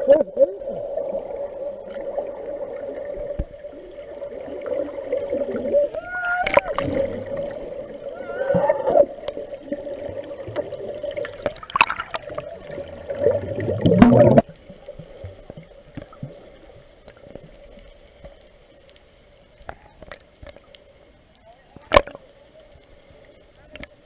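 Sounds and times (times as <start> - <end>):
water bubbling: 0.0 - 18.2
faint hiss: 0.0 - 24.0
muffled underwater noise: 0.0 - 24.0.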